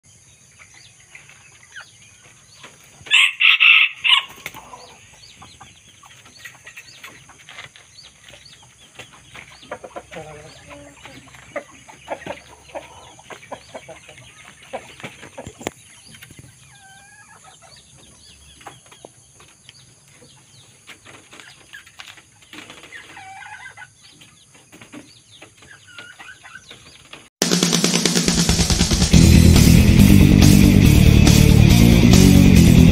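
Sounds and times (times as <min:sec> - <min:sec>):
hens clucking: 0:00.2 - 0:27.3
rooster crowing: 0:03.1 - 0:04.9.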